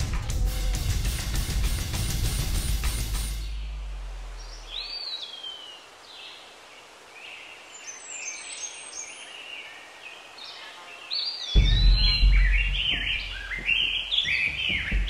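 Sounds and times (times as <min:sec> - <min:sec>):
faint outdoor hiss: 0:00.9 - 0:15.0
birds singing: 0:03.2 - 0:15.0.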